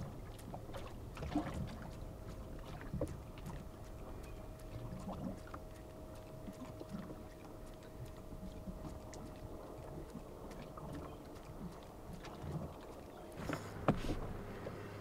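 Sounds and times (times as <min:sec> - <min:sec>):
small waves lapping against hull: 0:00.0 - 0:15.0
light ticks: 0:03.0 - 0:12.3.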